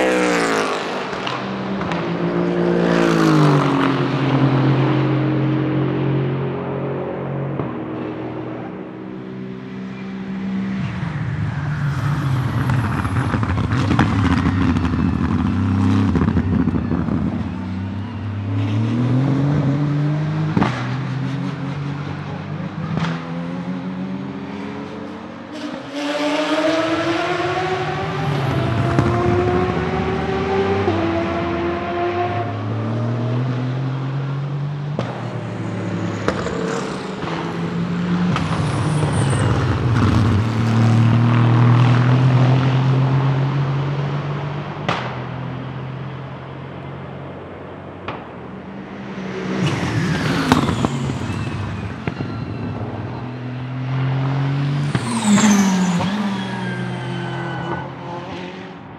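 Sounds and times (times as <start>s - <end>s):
race cars accelerating past: 0.0s - 58.9s.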